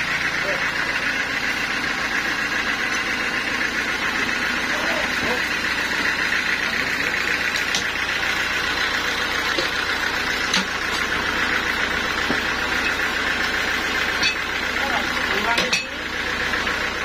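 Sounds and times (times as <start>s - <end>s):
band sawmill running: 0.0s - 17.0s
metal knocks from log carriage: 9.5s - 9.8s.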